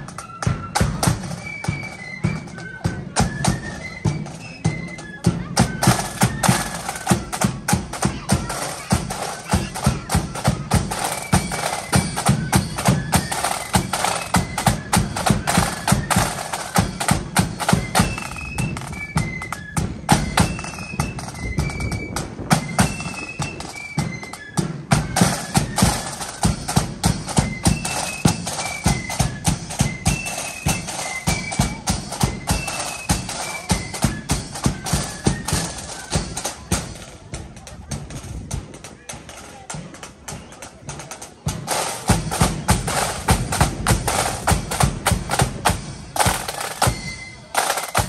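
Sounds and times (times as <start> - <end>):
high flute melody: 0.0 - 37.1, 44.1 - 48.0
fast steady drumming: 0.0 - 48.0.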